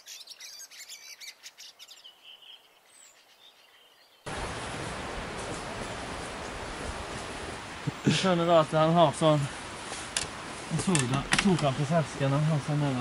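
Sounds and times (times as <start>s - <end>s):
small birds chirping: 0.0s - 4.3s
steady rushing noise: 4.3s - 13.0s.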